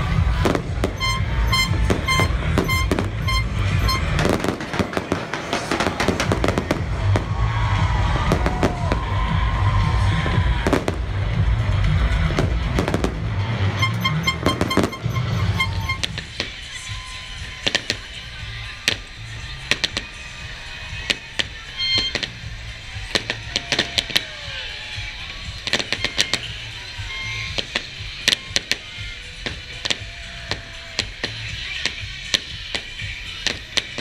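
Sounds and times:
low rumble: 0.0s - 16.6s
fireworks bursting: 0.0s - 34.0s.

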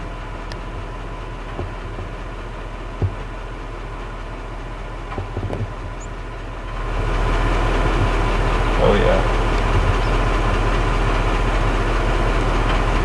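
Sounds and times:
vehicle engine idling: 0.0s - 13.0s
soft thumps: 1.5s - 2.1s, 3.0s - 3.4s, 5.1s - 6.1s.

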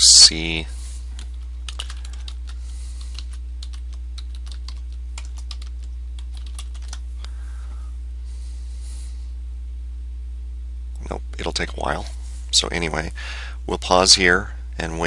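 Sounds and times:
steady low hum: 0.0s - 15.0s
keyboard typing: 1.2s - 7.0s.

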